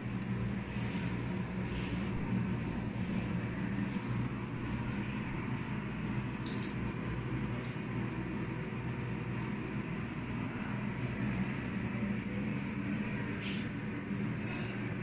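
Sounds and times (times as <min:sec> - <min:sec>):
low room hum: 0:00.0 - 0:15.0
light clicks and clinks: 0:06.3 - 0:07.8.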